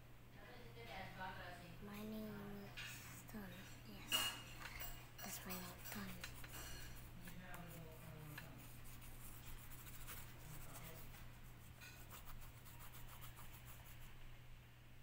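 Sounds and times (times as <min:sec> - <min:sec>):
steady low hum: 0:00.0 - 0:15.0
pencil shading on paper: 0:05.2 - 0:14.1.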